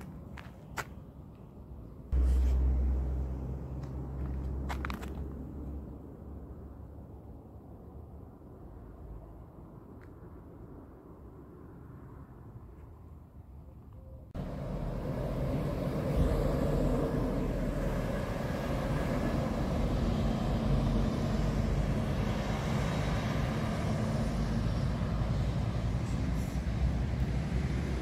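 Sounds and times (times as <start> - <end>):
heavy vehicle engine rumbling: 2.1 - 6.0, 14.4 - 28.0.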